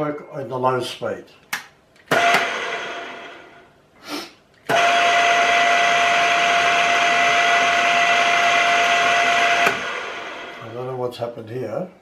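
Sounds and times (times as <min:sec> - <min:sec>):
drill press whining: 0:02.1 - 0:03.6, 0:04.6 - 0:10.6.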